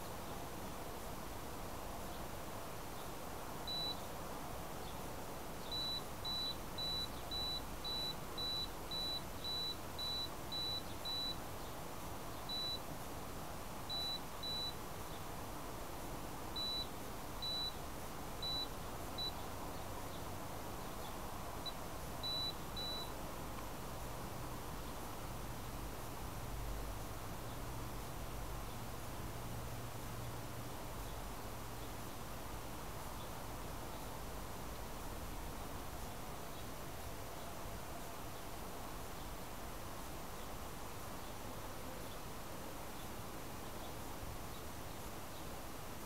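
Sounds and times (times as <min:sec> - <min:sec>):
steady hiss: 0:00.0 - 0:46.0
short high electronic beeps: 0:22.2 - 0:23.1.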